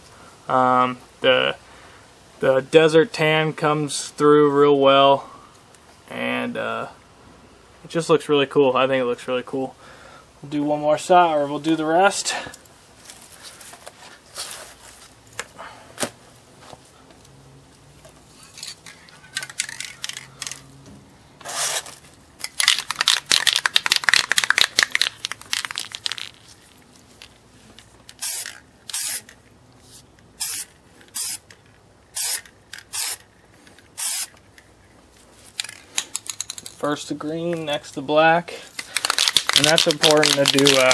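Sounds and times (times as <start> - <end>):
aerosol spray can spraying: 28.1 - 29.3, 30.4 - 31.4, 32.2 - 33.2, 34.0 - 34.4, 38.9 - 40.9.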